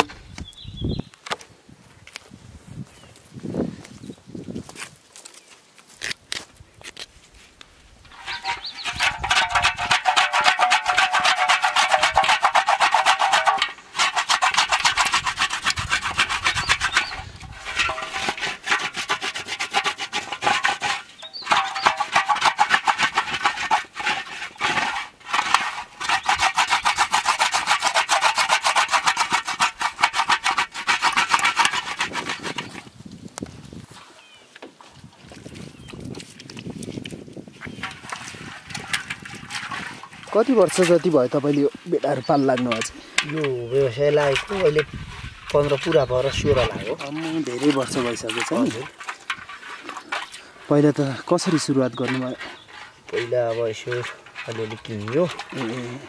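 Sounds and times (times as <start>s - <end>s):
knife scraping crusty surface: 8.1s - 32.8s.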